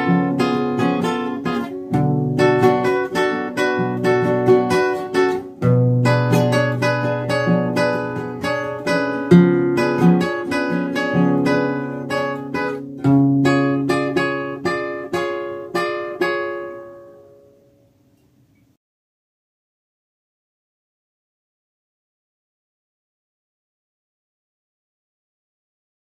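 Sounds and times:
flamenco guitar strummed chords: 0.0s - 18.0s.

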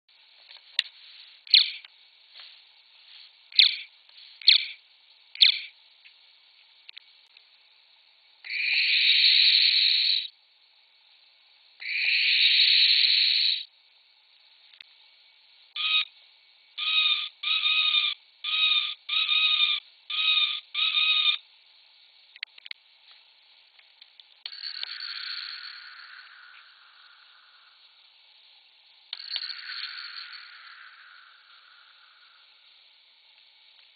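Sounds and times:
electronic owl hooting: 1.4s - 1.9s, 3.5s - 4.8s, 5.4s - 5.7s, 8.4s - 10.3s, 11.8s - 13.7s, 15.7s - 16.2s, 16.8s - 21.4s, 24.5s - 28.0s, 29.2s - 32.6s.

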